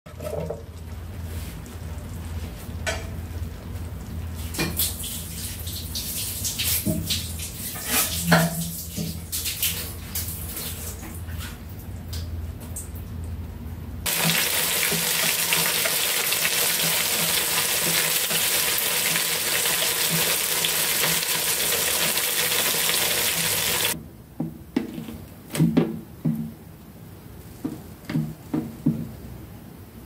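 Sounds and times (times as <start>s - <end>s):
meat sizzling in hot oil: 14.1s - 24.0s.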